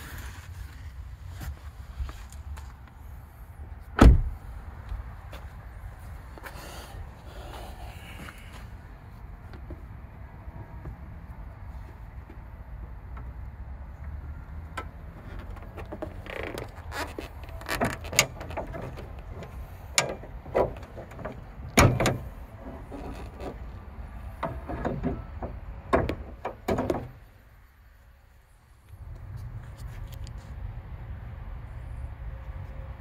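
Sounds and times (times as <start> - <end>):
car hood clicks and clunks: 4.0 - 4.3, 14.8 - 23.6, 24.3 - 27.2.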